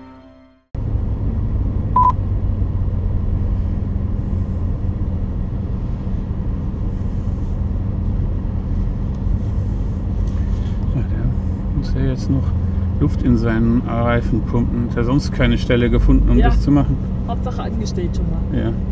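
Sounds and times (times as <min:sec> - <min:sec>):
car engine idling: 0:00.8 - 0:18.9
short electronic beep: 0:02.0 - 0:02.2.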